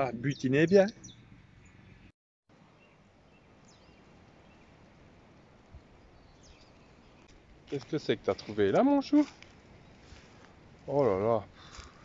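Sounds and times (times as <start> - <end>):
faint high bird chirps: 0.2 - 2.1, 5.9 - 7.3.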